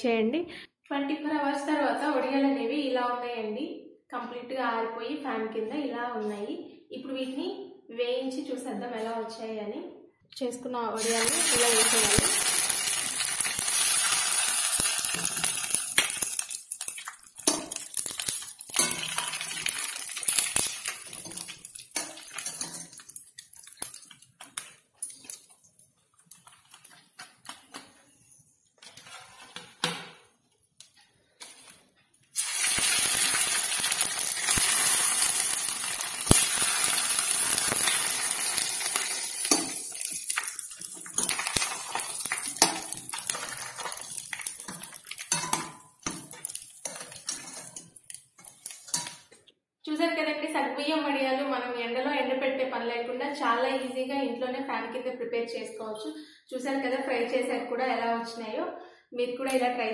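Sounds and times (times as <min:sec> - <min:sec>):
food sizzling in hot oil: 0:11.0 - 0:25.6, 0:32.3 - 0:49.4
wire skimmer clinking on pan: 0:14.4 - 0:24.1, 0:36.3 - 0:49.2.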